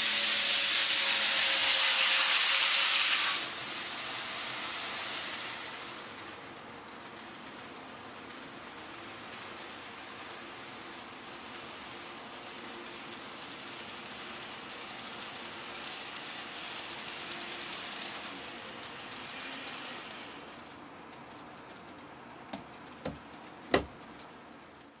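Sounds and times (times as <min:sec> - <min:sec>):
model trains hissing on track: 0:00.0 - 0:22.0.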